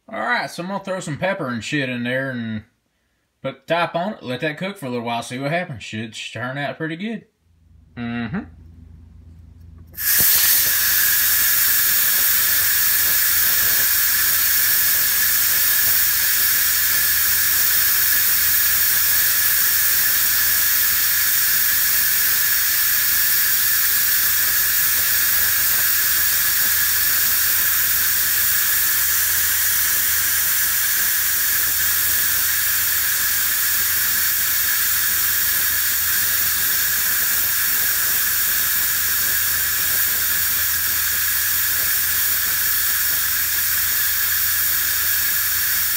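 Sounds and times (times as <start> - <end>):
steam hissing from valve: 9.9 - 45.9.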